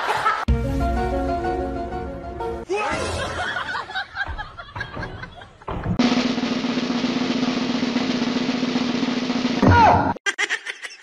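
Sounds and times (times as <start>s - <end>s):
music with drums: 5.9s - 9.9s.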